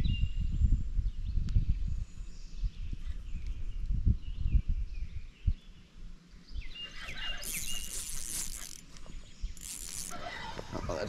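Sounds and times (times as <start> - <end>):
wind and handling rumble: 0.0 - 11.0
songbird chirping: 1.2 - 11.0
sleeve brushing camera: 7.4 - 10.6.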